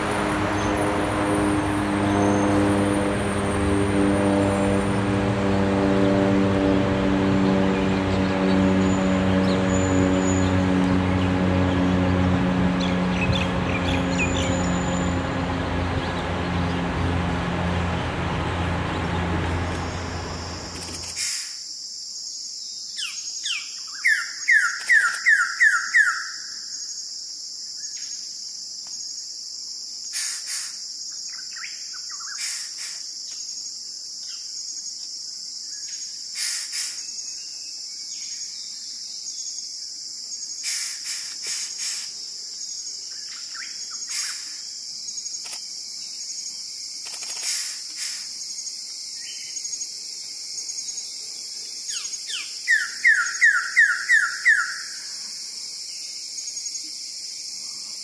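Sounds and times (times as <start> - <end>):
high insect drone: 0.0 - 58.0
short calls of other birds: 51.9 - 55.1.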